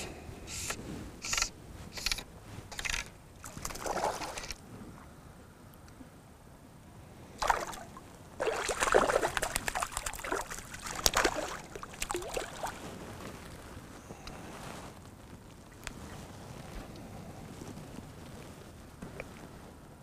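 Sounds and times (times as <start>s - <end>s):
fish splashing at water surface: 3.4s - 4.6s, 7.4s - 12.8s.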